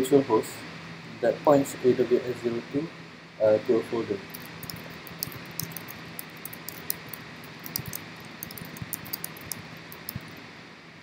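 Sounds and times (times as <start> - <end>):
steady background hiss: 0.0 - 11.0
keyboard key clicks: 4.3 - 10.4.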